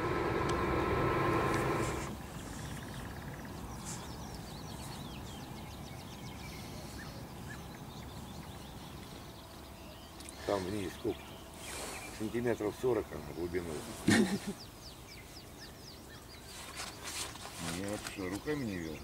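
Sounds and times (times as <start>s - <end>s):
mechanical hum: 0.0s - 2.3s
birds chirping: 0.0s - 19.0s.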